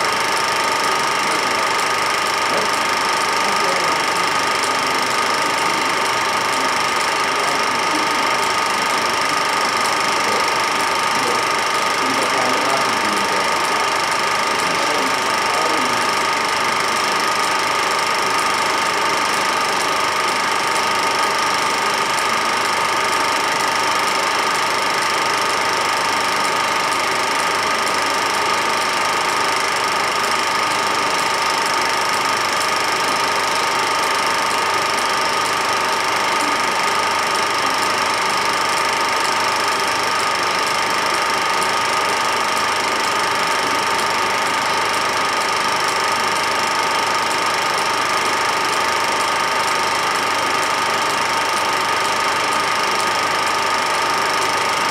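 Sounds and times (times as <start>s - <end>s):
film projector whirring: 0.0s - 54.9s.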